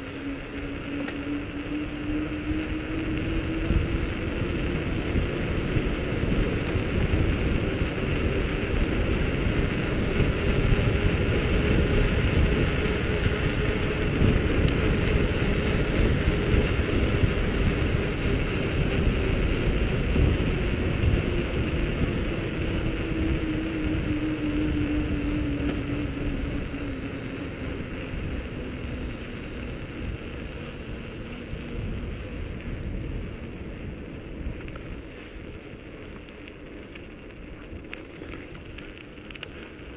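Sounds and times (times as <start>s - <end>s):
bike tyres humming on road: 0.0s - 39.9s
wind buffeting microphone: 0.0s - 39.9s.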